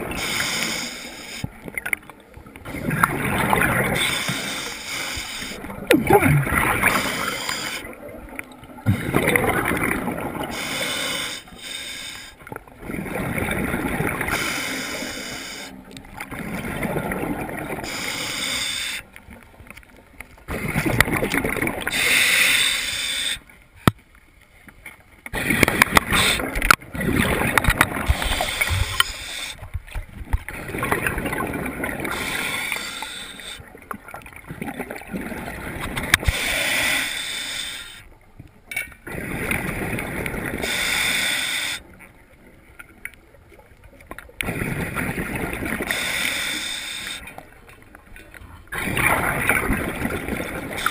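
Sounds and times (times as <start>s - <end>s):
diver exhaling bubbles: 5.8s - 7.9s.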